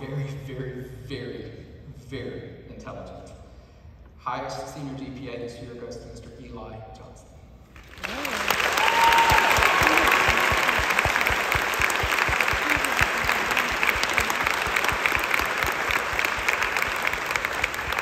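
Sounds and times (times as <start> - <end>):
audience applauding: 7.8 - 18.0
person clapping close by: 8.0 - 18.0.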